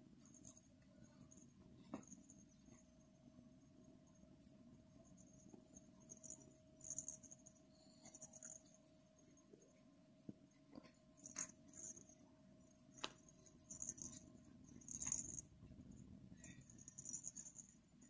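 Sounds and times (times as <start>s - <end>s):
fingers rustling and scratching stuffing: 0.0s - 18.0s.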